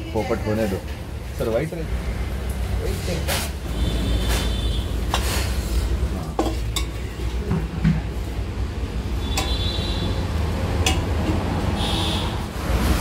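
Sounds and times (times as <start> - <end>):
ladle clinking on vessel: 9.3 - 9.6, 10.8 - 11.4.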